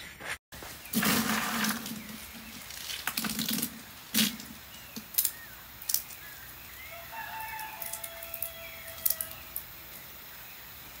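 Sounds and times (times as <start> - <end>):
faint birdsong: 0.0 - 11.0
dried beans rattling in bucket: 0.9 - 4.6
bean shell cracking: 2.7 - 6.2, 7.6 - 9.7.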